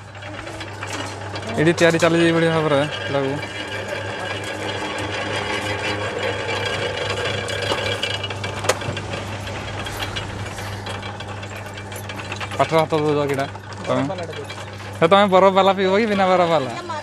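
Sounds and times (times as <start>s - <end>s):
gears and rollers rattling: 0.0s - 17.0s
juice crusher humming: 0.0s - 17.0s.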